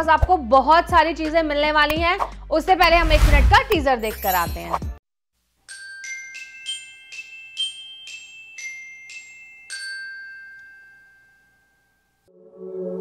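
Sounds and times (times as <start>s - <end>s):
bell-like jingle melody: 3.8s - 5.0s, 5.7s - 12.3s.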